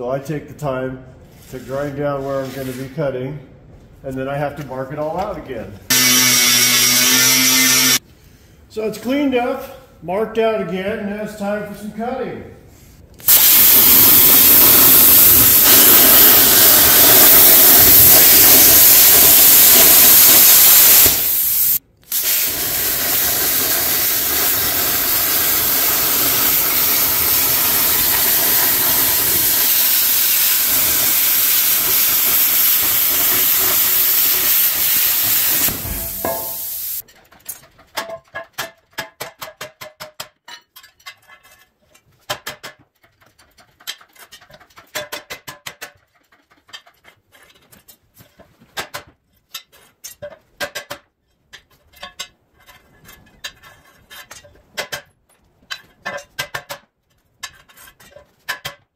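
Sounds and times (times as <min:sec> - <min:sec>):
plasma cutter hissing: 0:05.9 - 0:08.0, 0:13.2 - 0:37.0.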